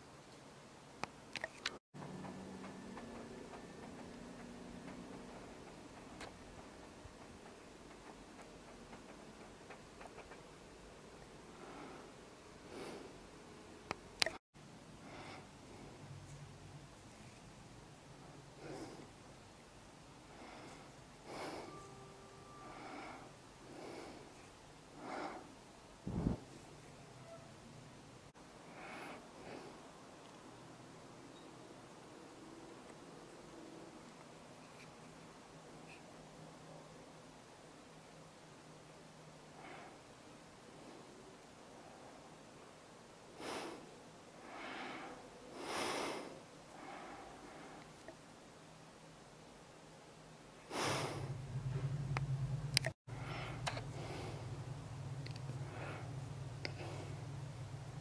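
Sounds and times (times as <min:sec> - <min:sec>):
faint steady hum: 0:00.0 - 0:58.0
soft breathing: 0:11.2 - 0:13.4, 0:14.9 - 0:16.4, 0:17.0 - 0:17.6, 0:18.2 - 0:19.3, 0:20.2 - 0:27.0, 0:28.6 - 0:30.5, 0:34.5 - 0:36.2, 0:43.3 - 0:48.2, 0:50.6 - 0:52.0, 0:53.1 - 0:54.8, 0:55.4 - 0:57.8.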